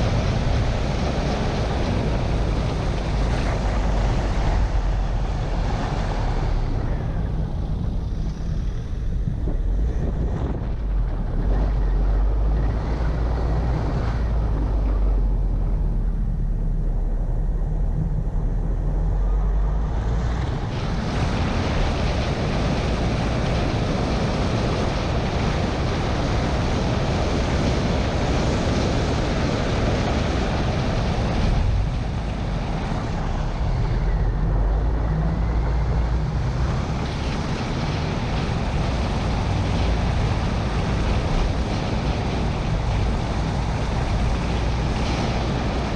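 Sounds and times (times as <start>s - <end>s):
car engine and tyre rumble: 0.0s - 45.9s
wind rushing over microphone: 0.0s - 45.9s.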